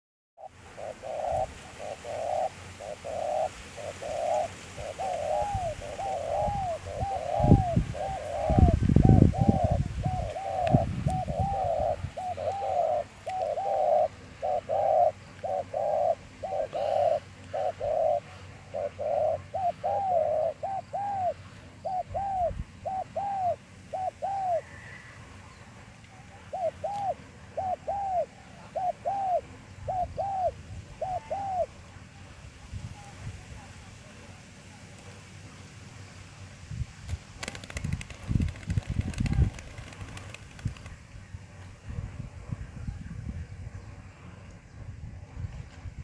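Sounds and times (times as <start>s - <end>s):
doves cooing: 0.4s - 25.7s, 26.4s - 31.8s, 37.4s - 41.0s.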